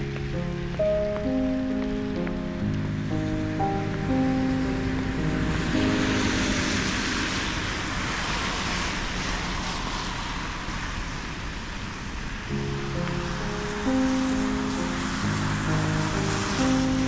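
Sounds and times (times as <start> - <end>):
vehicle passing by: 3.0 - 10.7.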